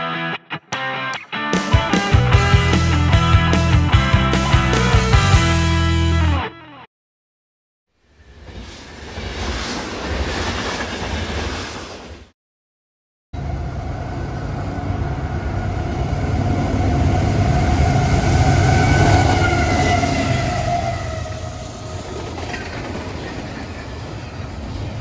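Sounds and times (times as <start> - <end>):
freight cars wheels on rails: 8.2 - 12.3, 13.4 - 25.0
diesel locomotive passing: 13.4 - 25.0.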